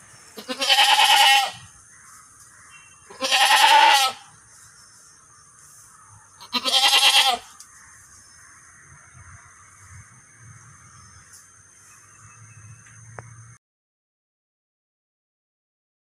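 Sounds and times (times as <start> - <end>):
goat bleating: 0.4 - 1.6, 3.1 - 4.3, 6.4 - 7.5.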